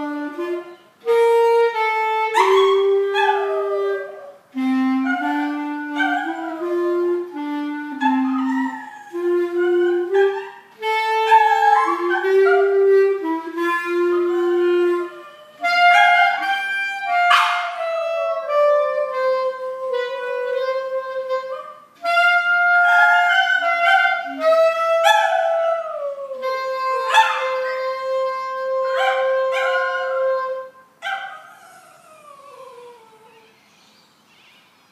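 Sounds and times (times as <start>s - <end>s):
clarinet playing slow tune: 0.0s - 33.6s
small dog howling: 5.0s - 6.7s, 8.0s - 10.6s, 11.2s - 12.8s, 31.0s - 33.6s.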